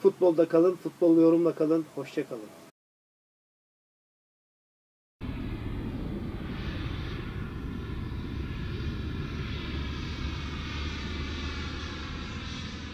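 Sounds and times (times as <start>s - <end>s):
deep hum: 5.2s - 12.9s
steady droning noise: 5.2s - 12.9s.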